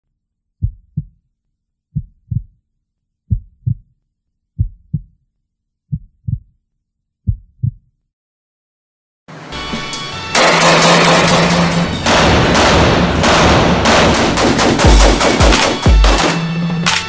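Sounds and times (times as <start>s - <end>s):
heartbeat thumps: 0.6s - 1.2s, 1.9s - 2.6s, 3.3s - 3.9s, 4.6s - 5.2s, 5.9s - 6.6s, 7.2s - 7.9s.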